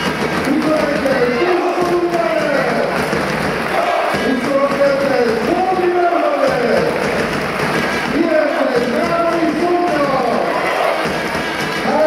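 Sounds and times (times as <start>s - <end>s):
crowd noise: 0.0s - 12.0s
crowd chanting in unison: 1.2s - 2.1s, 3.5s - 4.8s, 10.4s - 11.5s.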